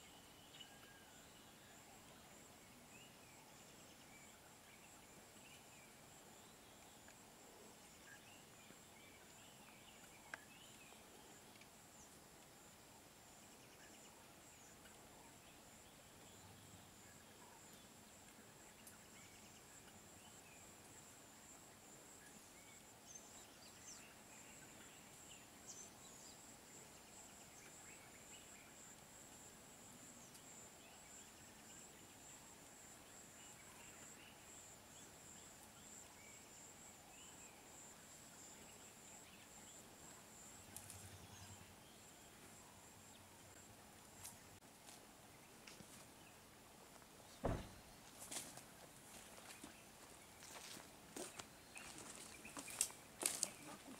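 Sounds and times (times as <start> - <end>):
faint bird chirps: 0.0 - 12.2.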